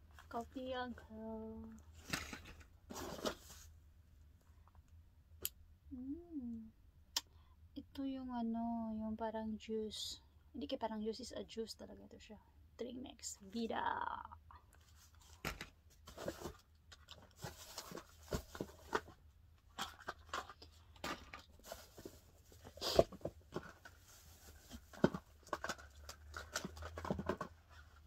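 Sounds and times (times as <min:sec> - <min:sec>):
plastic packaging rustling: 0:14.8 - 0:28.0.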